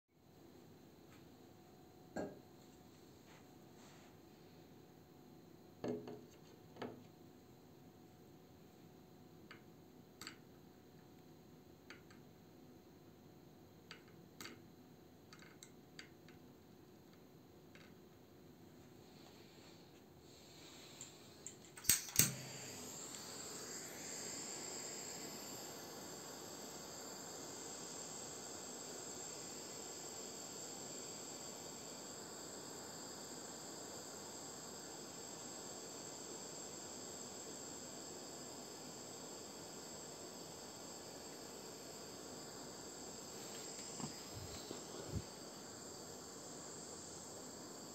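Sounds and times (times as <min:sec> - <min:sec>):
torch flame hissing: 0:19.0 - 0:47.9.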